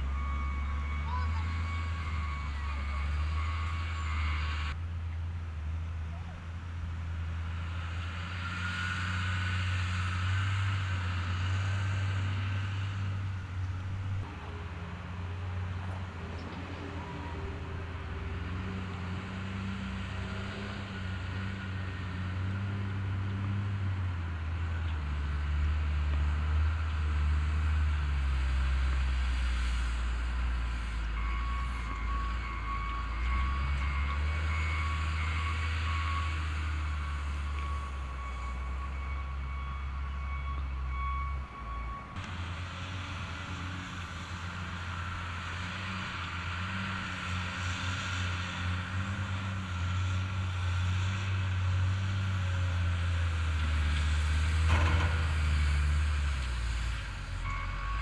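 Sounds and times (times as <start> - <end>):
wheel loader diesel engine revving: 0.0 - 4.8, 5.6 - 58.0
backup alarm beeping: 37.0 - 42.2.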